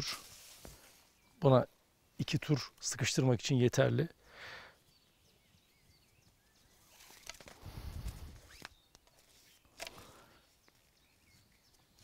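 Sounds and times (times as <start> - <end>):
faint bird chirps: 4.2 - 7.4, 8.4 - 12.0
rope rustling and clicking: 6.9 - 11.0.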